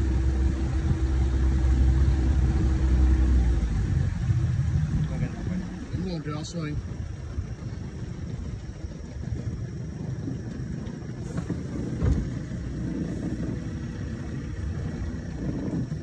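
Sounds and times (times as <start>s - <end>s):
boat motor running: 0.0s - 16.0s
thump: 11.4s - 12.3s.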